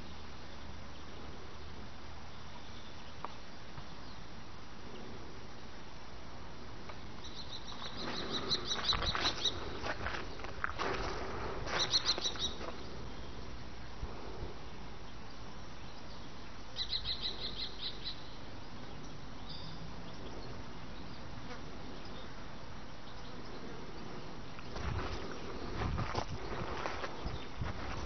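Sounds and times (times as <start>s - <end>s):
steady low hiss: 0.0s - 28.0s
small bird chirping: 7.2s - 10.5s, 11.7s - 13.4s, 15.1s - 21.3s.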